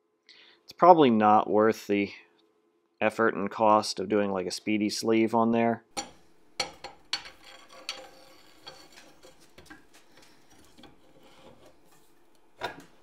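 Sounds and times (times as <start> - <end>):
metal clinks and scrapes: 7.1 - 12.2.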